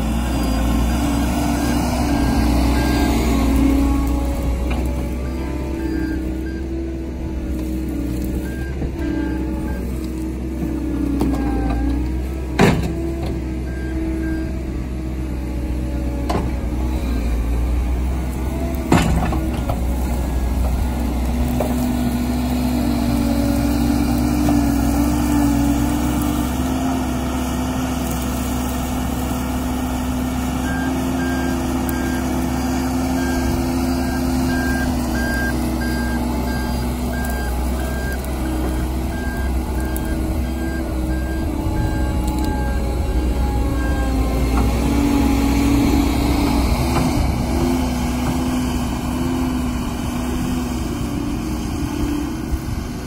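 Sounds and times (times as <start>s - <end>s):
diesel engine under load: 0.0s - 53.0s
reversing alarm beeps: 5.3s - 6.7s, 33.2s - 38.3s, 39.1s - 42.8s.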